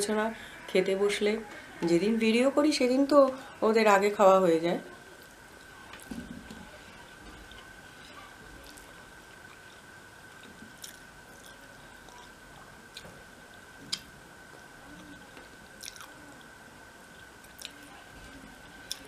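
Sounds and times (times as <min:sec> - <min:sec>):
person chewing: 0:08.6 - 0:12.3, 0:15.8 - 0:16.1, 0:17.2 - 0:17.8.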